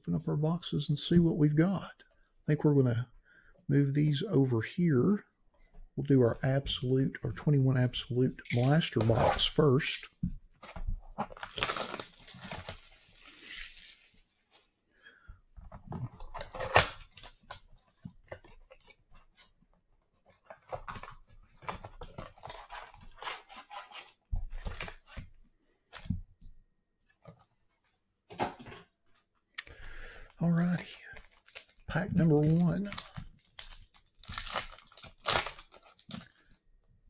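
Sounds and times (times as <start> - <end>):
plastic wrap crackling: 11.2 - 14.3, 30.7 - 36.5
foil packs crinkling: 11.3 - 14.3, 30.7 - 36.5.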